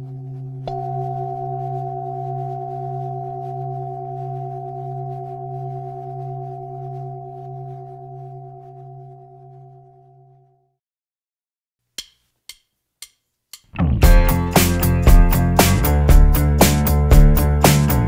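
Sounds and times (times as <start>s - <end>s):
wavering low drone: 0.0s - 10.6s
struck bell-like tone: 0.6s - 10.7s.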